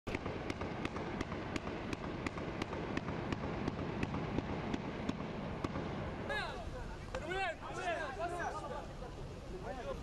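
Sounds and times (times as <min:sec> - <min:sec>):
distant gunfire cracks: 0:00.1 - 0:06.3
steady background noise: 0:00.1 - 0:10.0.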